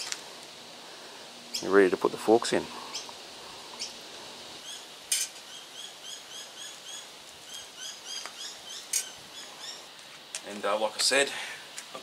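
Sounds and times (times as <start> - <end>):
small bird chirping: 1.5 - 1.8, 2.8 - 4.0, 4.6 - 10.0.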